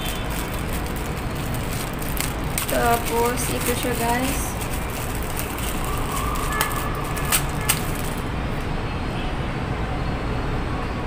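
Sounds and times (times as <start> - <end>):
sharp plastic clicks: 0.0 - 8.2
plastic bag rustling: 0.0 - 8.3.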